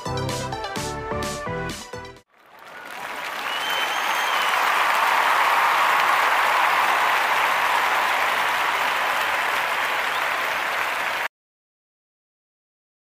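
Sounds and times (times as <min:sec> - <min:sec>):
crowd applause: 0:02.3 - 0:11.3.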